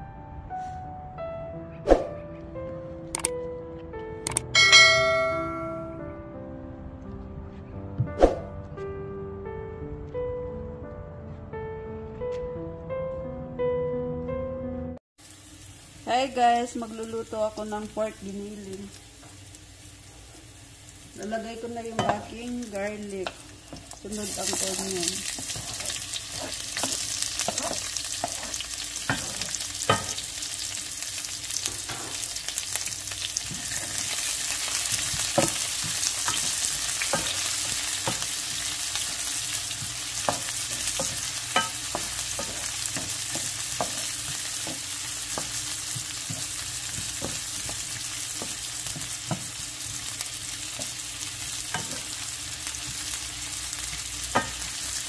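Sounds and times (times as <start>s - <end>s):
onion sizzling in oil: 15.2s - 55.0s
spatula scraping a pan: 24.4s - 30.2s.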